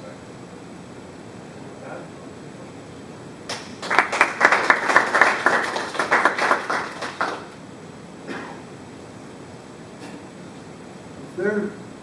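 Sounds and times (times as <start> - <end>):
audience applauding: 3.5 - 7.6.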